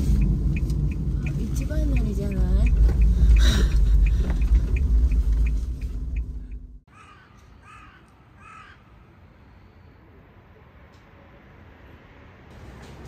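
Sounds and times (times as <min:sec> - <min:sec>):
light regular ticking: 0:00.1 - 0:06.8
crow cawing: 0:06.9 - 0:08.9.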